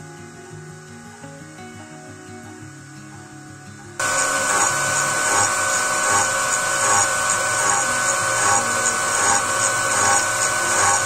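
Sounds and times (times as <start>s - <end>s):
milling machine cutting steel: 4.0s - 11.0s.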